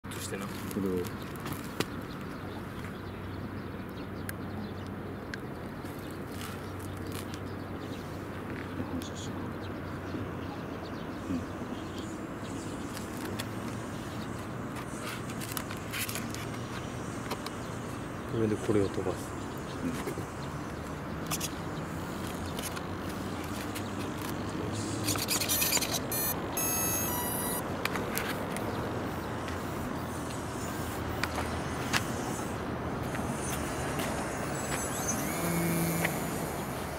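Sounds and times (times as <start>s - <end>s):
rustling of handling: 0.1s - 1.9s
electronic beeps: 25.0s - 27.7s.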